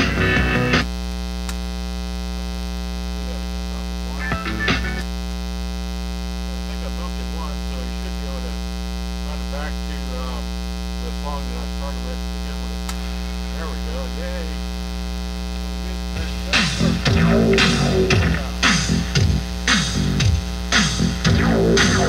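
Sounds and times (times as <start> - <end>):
music: 0.0 - 0.9, 4.2 - 5.0, 16.2 - 22.0
mains hum: 0.0 - 22.0.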